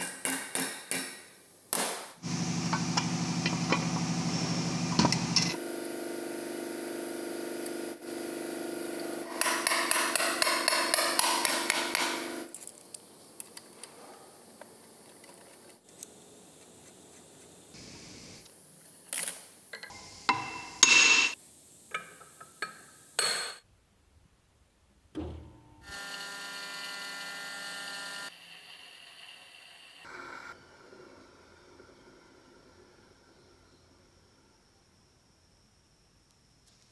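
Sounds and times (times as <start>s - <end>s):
steady hum: 2.2s - 10.8s.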